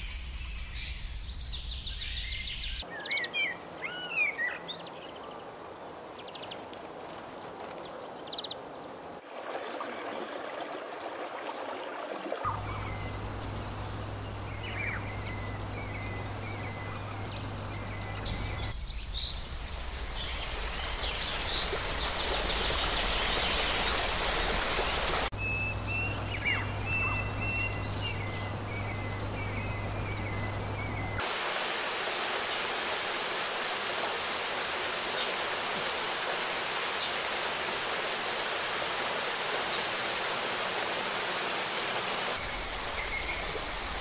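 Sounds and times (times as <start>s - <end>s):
forest stream rushing: 0.0s - 44.0s
small birds chirping: 12.4s - 31.2s, 42.4s - 44.0s.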